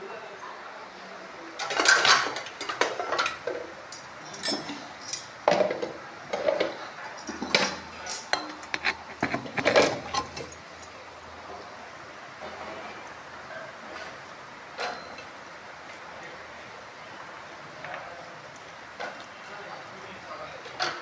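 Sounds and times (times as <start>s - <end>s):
metal vessels clinking and clattering: 1.6s - 11.8s, 14.8s - 16.0s.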